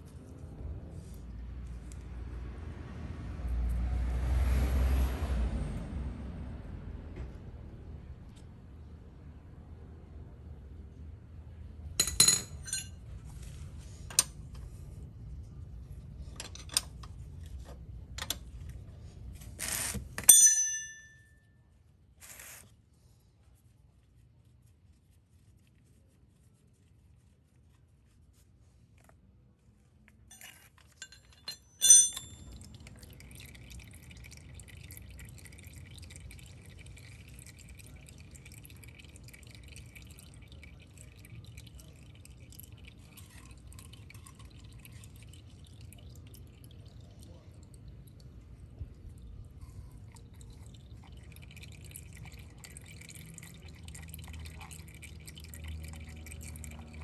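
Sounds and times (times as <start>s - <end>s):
ringing metallic clinks: 12.0s - 12.9s, 20.2s - 21.4s, 30.3s - 32.6s
metal parts and tools clinking: 12.0s - 13.0s, 20.2s - 21.3s, 30.3s - 32.5s.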